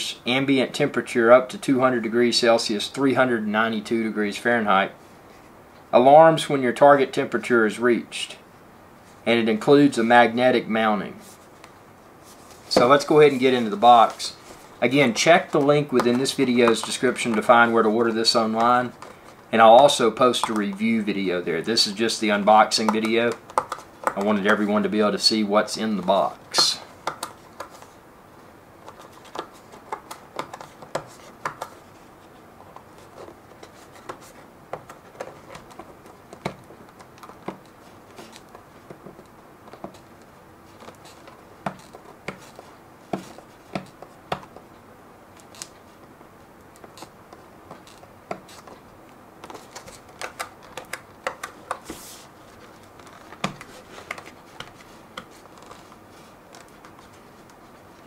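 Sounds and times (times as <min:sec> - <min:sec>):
cardboard sliding scuff: 0:51.8 - 0:52.3.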